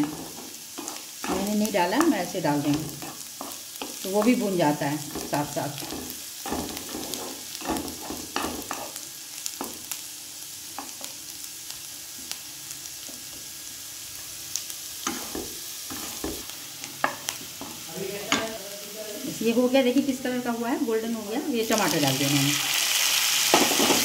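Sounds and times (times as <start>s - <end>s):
spatula scraping a pan: 0.0s - 1.5s, 2.9s - 4.0s, 5.1s - 9.0s, 15.0s - 18.6s
vegetables sizzling in oil: 0.0s - 24.0s.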